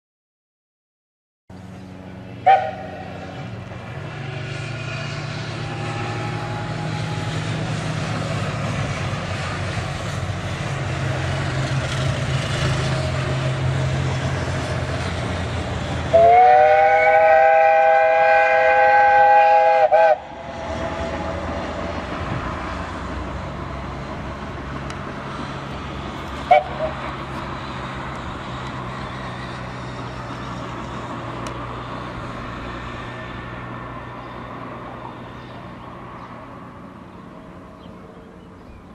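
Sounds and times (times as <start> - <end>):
locomotive low rumble: 1.5 - 38.9
steam locomotive whistle blast: 2.4 - 3.2, 16.1 - 21.2, 26.5 - 27.0.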